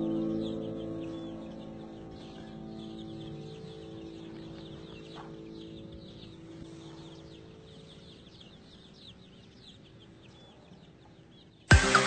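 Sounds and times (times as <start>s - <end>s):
birds chirping: 0.0s - 12.0s.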